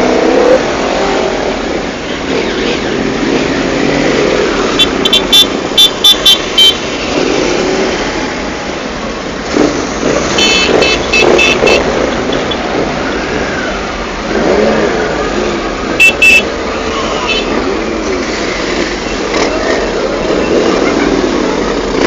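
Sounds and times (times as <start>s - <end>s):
motorcycle engines revving: 0.0s - 22.0s
horn short blasts: 10.3s - 11.9s, 16.0s - 16.5s.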